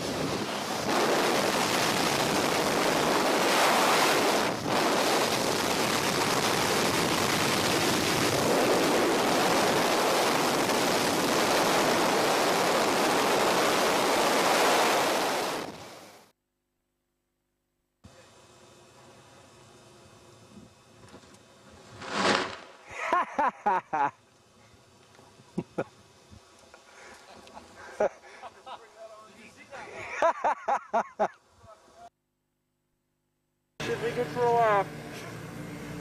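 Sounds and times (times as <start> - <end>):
wind rushing over microphone: 0.0 - 16.0.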